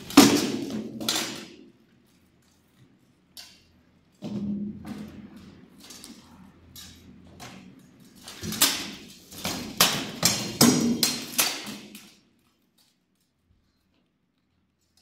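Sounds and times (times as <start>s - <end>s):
swords striking shields and armour: 0.0s - 1.6s, 8.3s - 12.0s.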